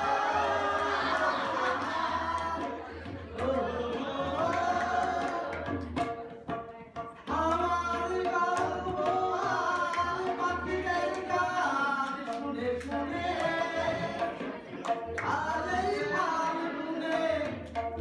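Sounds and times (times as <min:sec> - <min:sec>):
tabla: 0:00.0 - 0:18.0
man singing into microphone: 0:07.3 - 0:14.5, 0:15.2 - 0:17.7.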